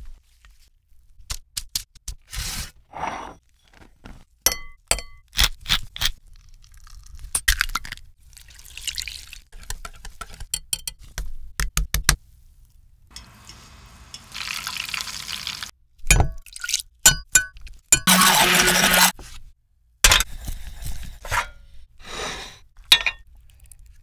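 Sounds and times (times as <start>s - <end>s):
metal spoon clinking in saucepan: 4.5s - 5.2s, 22.9s - 23.2s
food deep-frying in oil: 13.1s - 15.7s
utensils clinking on glass bowl: 22.9s - 23.2s.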